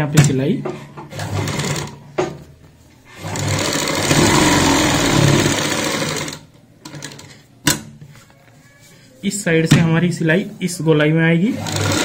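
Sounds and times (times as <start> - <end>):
sewing machine running: 1.2 - 1.9, 3.2 - 7.2, 11.5 - 12.0.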